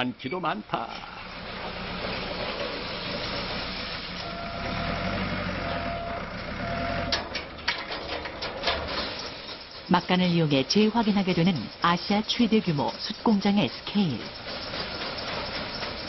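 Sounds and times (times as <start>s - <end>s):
forklift engine running: 0.3s - 16.0s
high tone: 4.2s - 7.2s
charcoal clattering into hopper: 7.2s - 9.8s.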